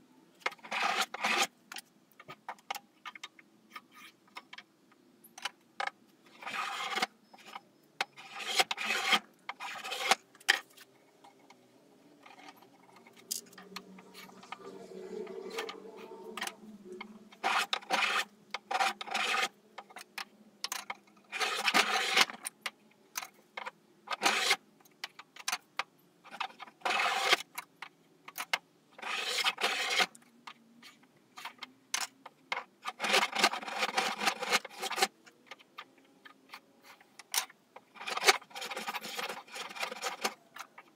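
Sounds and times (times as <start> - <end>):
spokeshave shaving wood: 0.5 - 1.5, 6.3 - 7.1, 8.2 - 10.9, 12.2 - 19.6, 21.3 - 22.4, 24.2 - 24.6, 26.8 - 27.4, 29.0 - 30.2.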